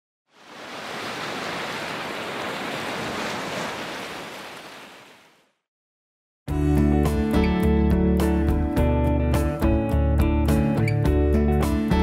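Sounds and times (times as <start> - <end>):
wave washing in: 0.3 - 5.5.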